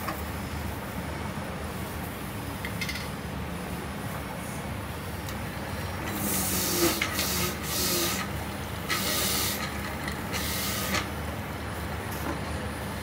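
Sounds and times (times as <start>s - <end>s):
hiss of fruit being juiced: 5.9s - 11.2s.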